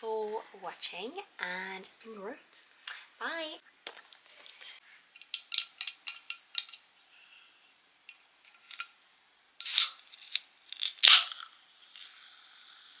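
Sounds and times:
can opening crack: 0:05.2 - 0:06.8, 0:08.5 - 0:08.9, 0:09.6 - 0:11.6
can opening hiss and fizz: 0:09.6 - 0:13.0.

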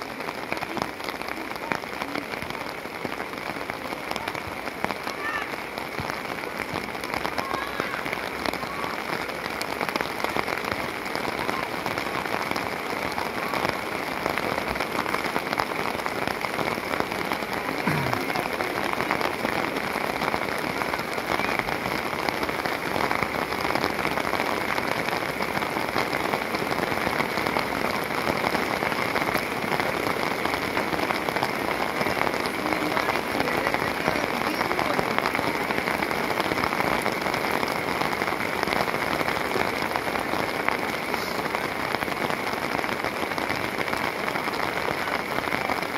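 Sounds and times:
rain pattering on an umbrella: 0:00.0 - 0:45.9.

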